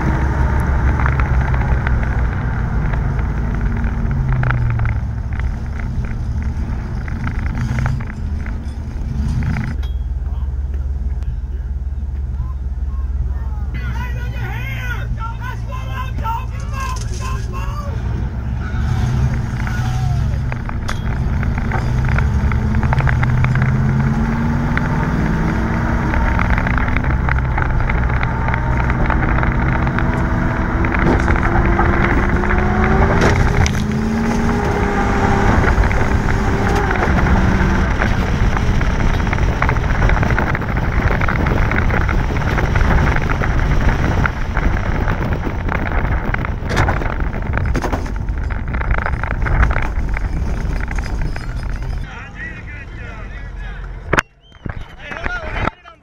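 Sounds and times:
road and wind noise: 0.0s - 56.0s
car engine from inside: 16.8s - 54.5s.

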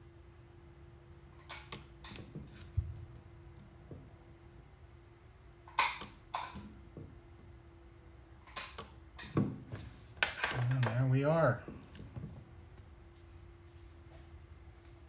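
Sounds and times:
spot welder snapping: 5.7s - 6.7s, 8.4s - 9.4s.

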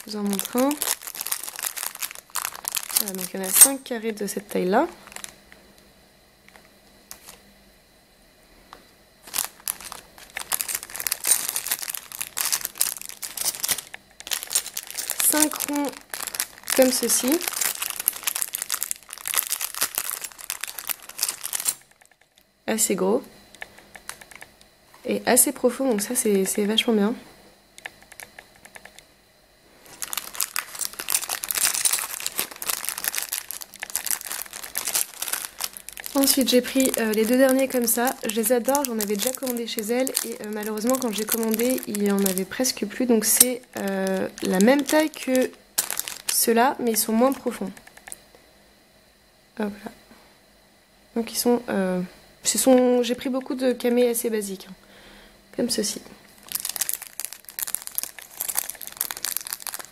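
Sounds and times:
plastic bag crinkling: 0.0s - 5.4s, 9.2s - 22.4s, 29.8s - 48.2s, 56.4s - 59.9s.

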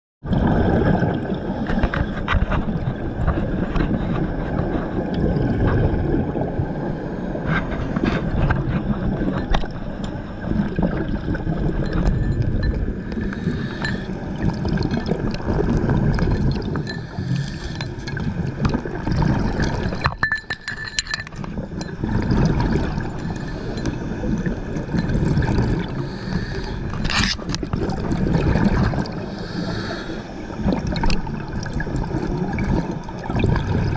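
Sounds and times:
underwater gurgling water: 0.2s - 33.9s
clicks and clinks: 19.8s - 22.0s.

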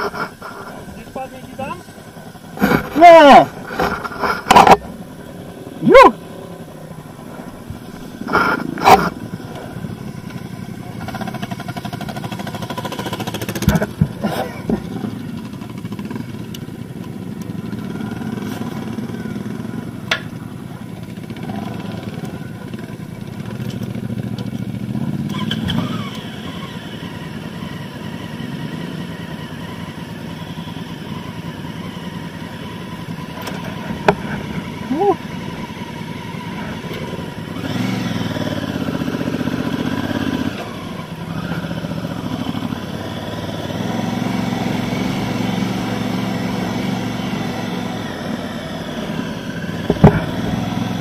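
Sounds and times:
motorcycle engine idling: 0.0s - 51.0s
sharp knocks and clunks: 13.5s - 15.0s, 49.8s - 50.8s.

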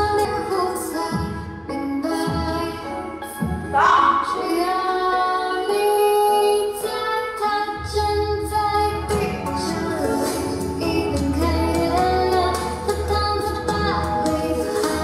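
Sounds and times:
pop song with female vocal: 0.0s - 15.0s
low bass: 7.9s - 15.0s.

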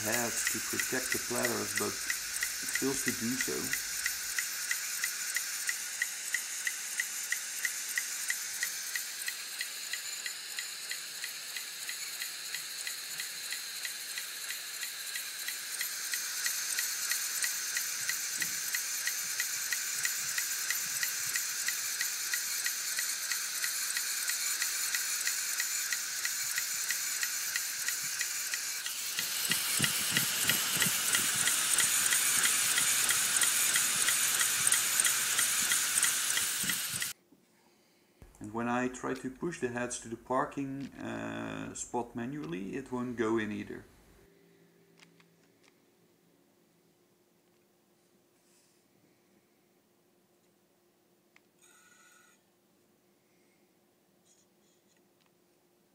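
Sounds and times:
hard drive head ticking: 0.0s - 37.2s
hard drive whining: 0.0s - 37.2s.

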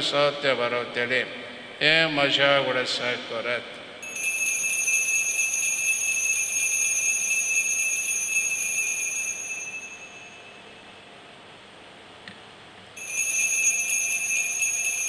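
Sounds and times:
altar bells jingling: 4.0s - 10.6s, 13.0s - 15.0s.

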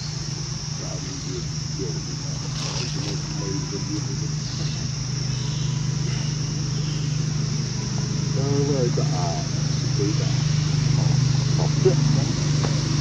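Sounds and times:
high insect drone: 0.0s - 13.0s
low motor-like hum: 0.0s - 13.0s
faint voices: 0.8s - 13.0s.

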